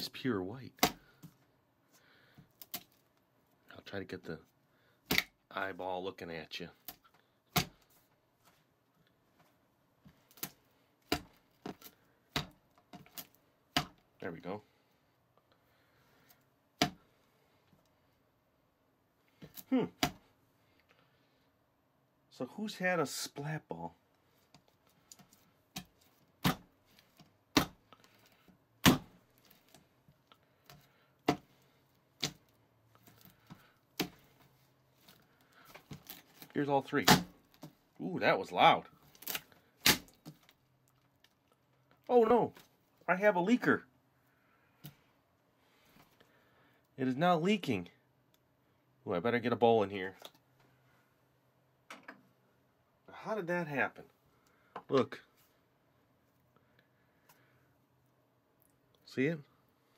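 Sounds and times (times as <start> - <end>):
squishy ball slapping tabletop: 0.8 - 1.4, 5.0 - 5.4, 6.8 - 7.9, 10.1 - 14.0, 25.1 - 27.8, 28.8 - 29.7.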